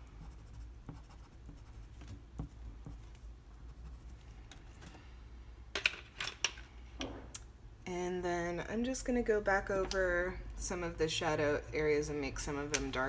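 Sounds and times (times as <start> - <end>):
pencil scratching on paper: 0.0 - 4.2.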